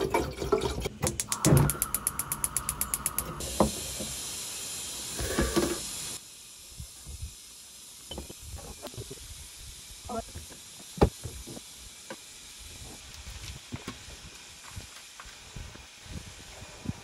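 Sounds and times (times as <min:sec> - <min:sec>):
fast mechanical clicks: 0:01.0 - 0:03.4
steady hiss: 0:01.2 - 0:17.0.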